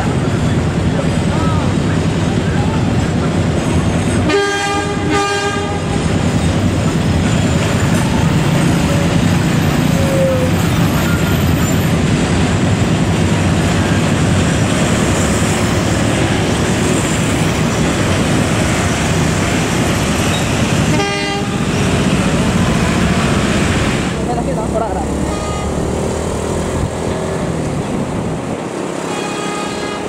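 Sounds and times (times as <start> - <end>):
freight train rumbling past: 0.0 - 30.0
locomotive air horn blasts: 4.2 - 5.9, 20.9 - 21.7, 25.2 - 25.9, 29.0 - 30.0.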